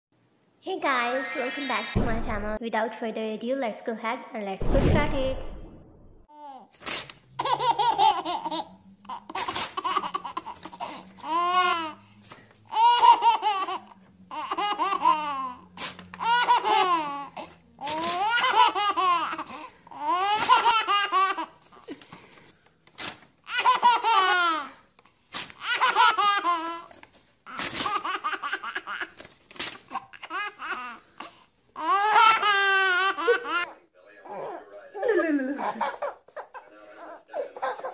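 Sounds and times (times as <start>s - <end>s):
baby laughing: 0.9s - 2.0s, 7.4s - 12.0s, 12.7s - 15.6s, 16.2s - 22.0s, 23.4s - 24.7s, 25.6s - 26.9s, 27.5s - 31.0s, 31.8s - 37.9s
paper being torn: 6.8s - 7.2s, 15.8s - 16.2s, 17.8s - 18.4s, 22.8s - 23.3s, 25.3s - 25.8s, 26.9s - 28.1s, 29.0s - 30.0s.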